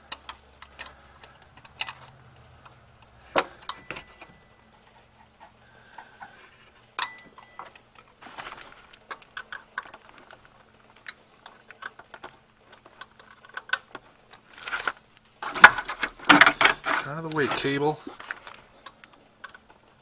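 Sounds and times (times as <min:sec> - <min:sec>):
metal scraping: 0:14.5 - 0:18.7.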